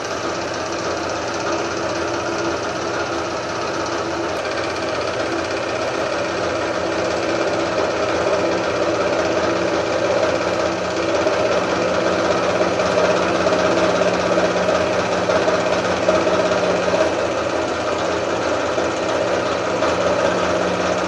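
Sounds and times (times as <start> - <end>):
scroll saw cutting acrylic: 0.0 - 21.0.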